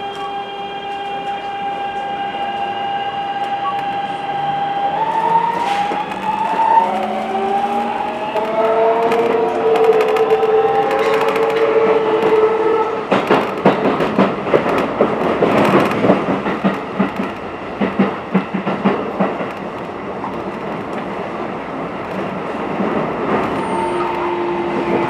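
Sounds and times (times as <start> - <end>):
train rumble: 0.0 - 25.0
train wheels clattering over joints: 13.1 - 21.2.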